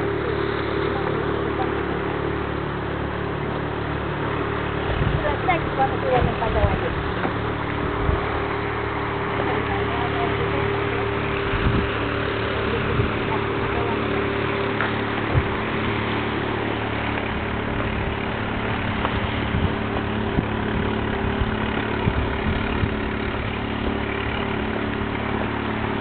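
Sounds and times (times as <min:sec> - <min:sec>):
constant low hum: 0:00.0 - 0:26.0
wind buffeting microphone: 0:04.6 - 0:09.4, 0:10.4 - 0:25.2.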